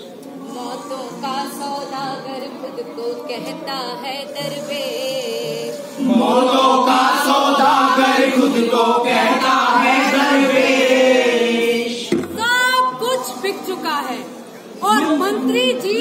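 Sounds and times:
group of voices chanting: 0:05.8 - 0:12.1.

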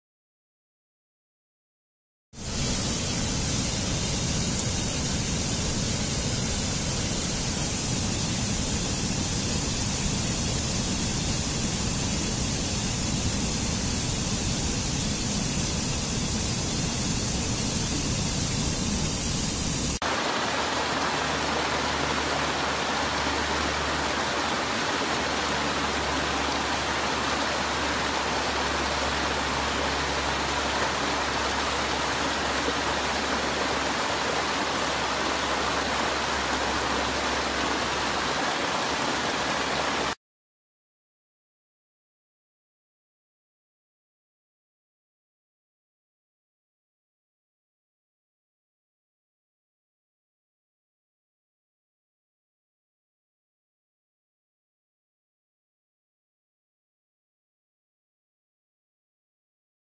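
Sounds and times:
water rushing down small cascades: 0:02.4 - 0:40.2
stream tumbling over rocks: 0:20.0 - 0:40.2.

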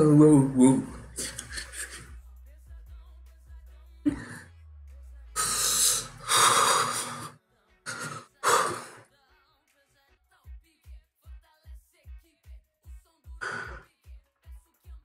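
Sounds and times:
man exhaling breathily: 0:05.4 - 0:09.0, 0:13.4 - 0:13.8.

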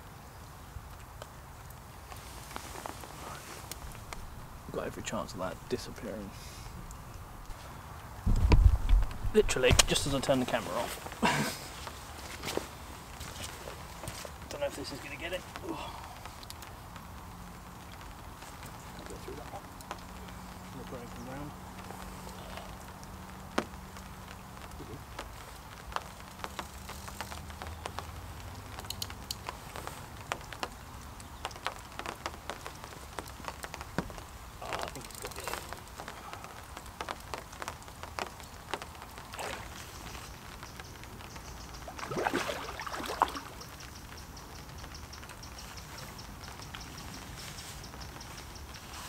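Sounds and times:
rain pattering: 0:00.0 - 0:49.0
raindrops ticking on umbrella: 0:00.0 - 0:49.0.

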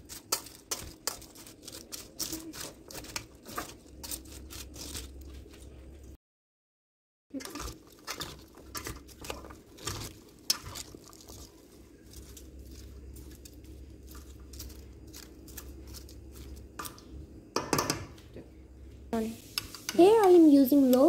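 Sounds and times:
salad leaves rustling and squishing: 0:00.0 - 0:06.0, 0:07.3 - 0:17.0.

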